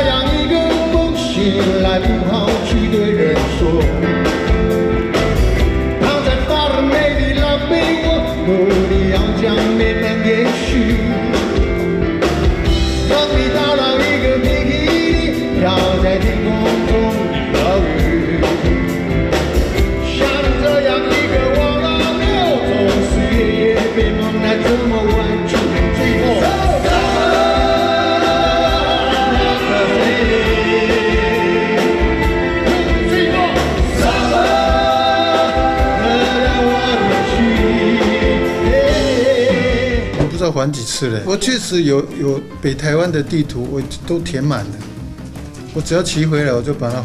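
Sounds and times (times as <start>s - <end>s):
man singing into microphone: 0.0s - 4.4s, 6.0s - 11.7s, 13.0s - 18.9s, 20.0s - 32.0s, 32.6s - 40.6s
big band with saxophones: 0.0s - 47.0s.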